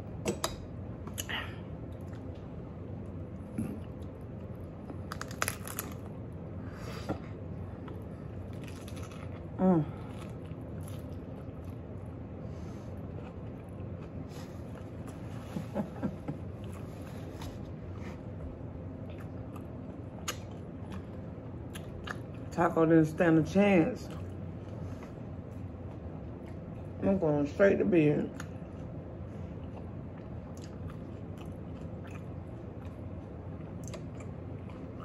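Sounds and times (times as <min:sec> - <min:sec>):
steady low hum: 0:00.0 - 0:35.0
crunchy bites and chewing: 0:03.6 - 0:06.2, 0:07.8 - 0:11.9.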